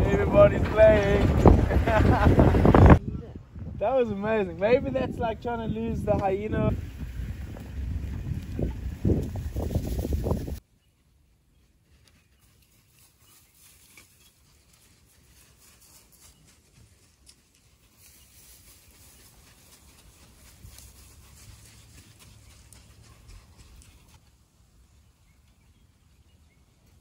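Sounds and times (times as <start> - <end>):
low rumble: 0.0 - 3.9
paws pattering on sand: 7.5 - 10.6, 11.5 - 24.3.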